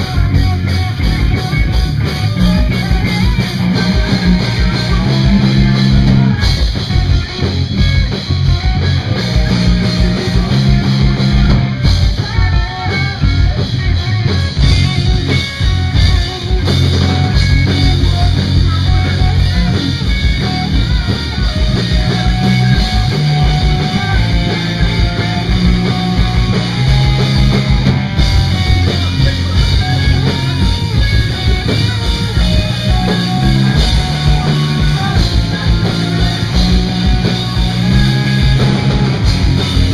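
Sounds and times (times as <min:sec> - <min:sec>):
rock band playing: 0:00.0 - 0:39.9
man singing: 0:34.0 - 0:39.1.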